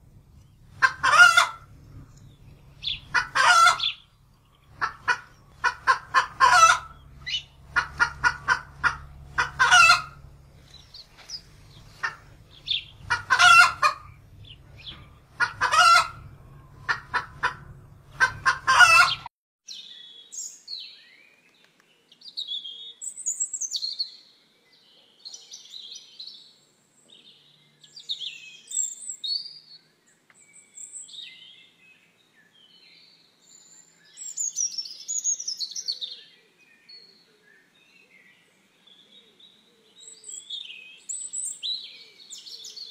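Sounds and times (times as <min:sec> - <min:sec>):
low steady hum: 0:00.0 - 0:19.3
hen calling loudly: 0:00.2 - 0:19.3.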